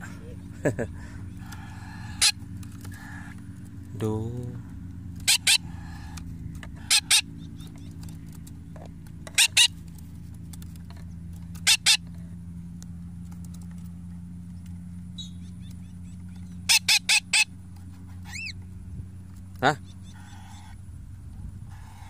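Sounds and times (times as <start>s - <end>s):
steady low hum: 0.0s - 22.0s
parakeet double chirps: 5.2s - 6.2s, 6.8s - 7.7s, 9.3s - 9.7s, 11.6s - 12.0s, 16.6s - 17.5s, 18.2s - 18.6s.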